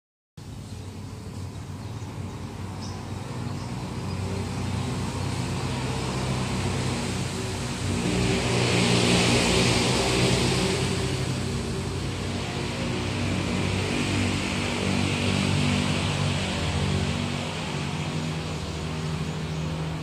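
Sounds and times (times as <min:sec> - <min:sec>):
vehicle engine humming: 0:00.4 - 0:20.0.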